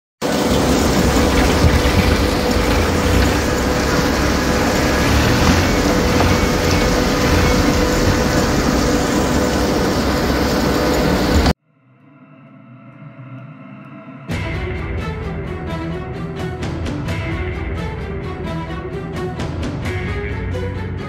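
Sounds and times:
harvester deep rumble: 0:00.2 - 0:11.6.

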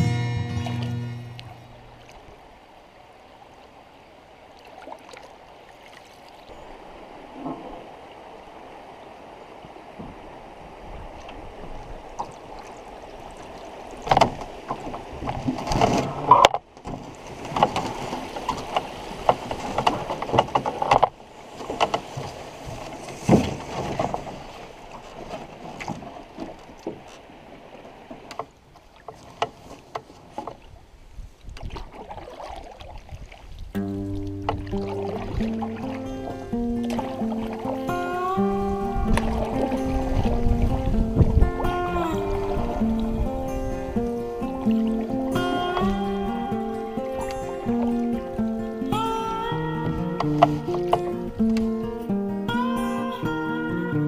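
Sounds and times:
faint water: 0:00.0 - 0:54.0
water splashing and sloshing: 0:00.0 - 0:54.0
knocks and scrapes on canoe hull: 0:14.0 - 0:30.8, 0:49.9 - 0:51.7.

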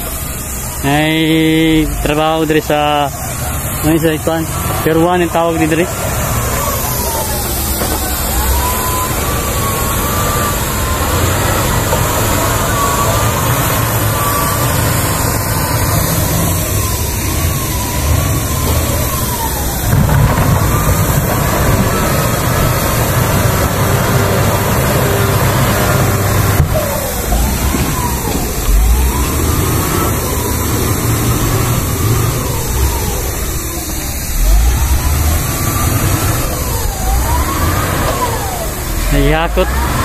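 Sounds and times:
diesel engine rumble: 0:00.0 - 0:40.0.

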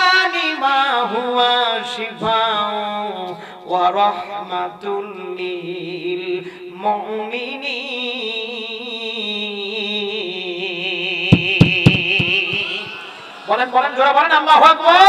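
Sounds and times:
man chanting melodically: 0:00.0 - 0:15.0
sharp thumps: 0:11.3 - 0:12.9.

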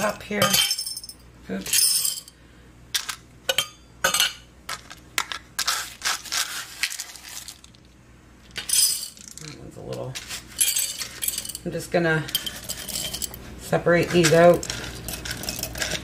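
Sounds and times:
beans dropping into glass jar: 0:08.6 - 0:09.6
spoon scraping wire mesh: 0:12.3 - 0:16.0.

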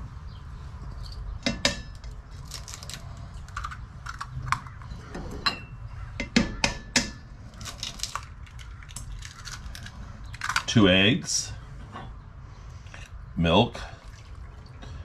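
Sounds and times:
eggs cracked against metal bowl: 0:06.2 - 0:10.7.

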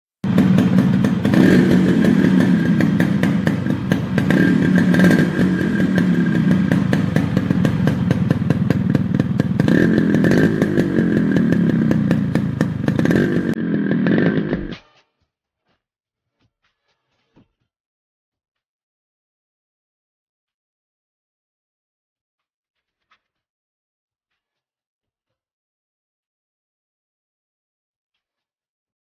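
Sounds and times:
motorcycle engine revving: 0:00.2 - 0:14.8.

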